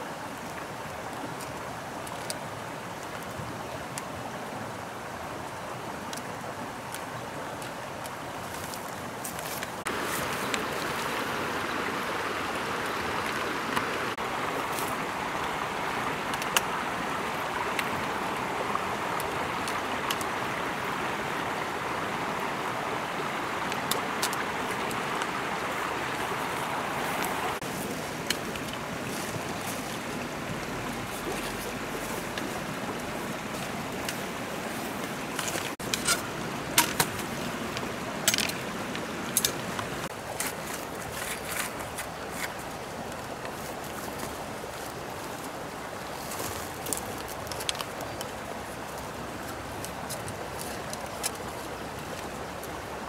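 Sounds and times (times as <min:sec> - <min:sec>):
stream water running: 0:00.0 - 0:53.0
bamboo poles clicking: 0:35.1 - 0:42.6, 0:46.4 - 0:48.4.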